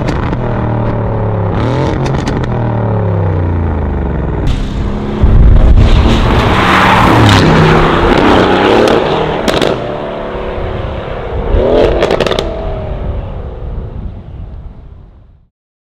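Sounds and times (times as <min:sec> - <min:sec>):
exhaust crackles and pops: 0:00.0 - 0:02.7, 0:07.2 - 0:09.9, 0:11.8 - 0:12.6
sports car engine revving past: 0:05.0 - 0:13.9.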